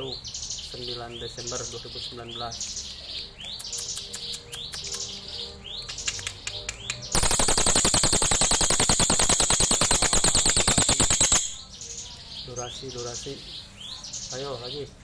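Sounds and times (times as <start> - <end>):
bird chirping notes: 0.0 - 15.0
bird dry rattle call: 7.2 - 11.7.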